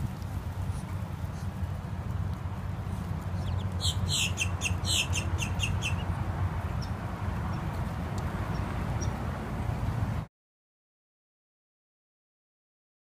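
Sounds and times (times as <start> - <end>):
ducklings peeping: 2.9 - 7.7, 8.5 - 9.2.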